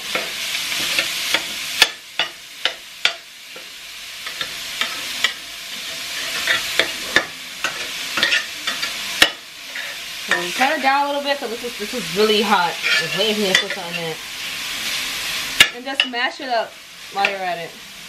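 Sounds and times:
meat sizzling in a skillet: 0.0 - 18.0
spatula scraping meat: 4.4 - 9.0, 9.7 - 11.0, 12.7 - 14.1.

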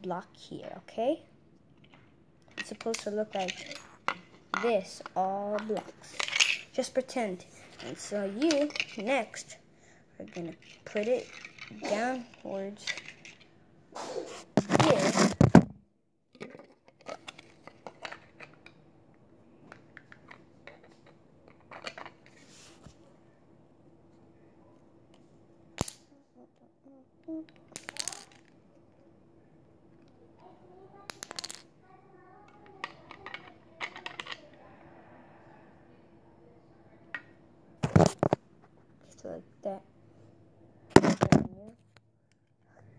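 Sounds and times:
faint low hum: 0.0 - 42.9
phone handling rustling and scraping: 14.5 - 15.7, 37.8 - 38.8
plastic bricks clicking: 32.8 - 34.4.

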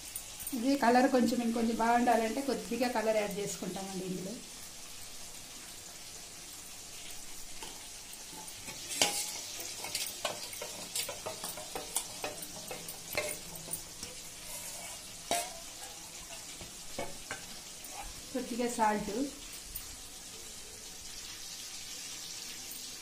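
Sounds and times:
frying sizzle: 0.0 - 23.0
metal ladle clinking in steel bowl: 8.3 - 15.7.

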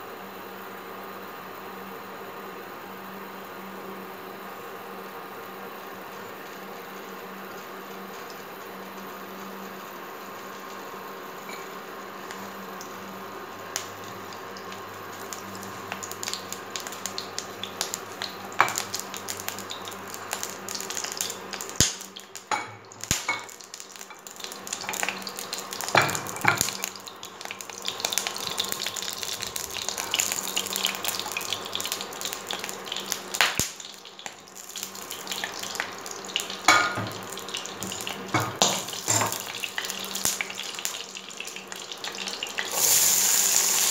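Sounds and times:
electric hob humming: 0.0 - 43.9
oil crackling and popping: 13.7 - 43.9.

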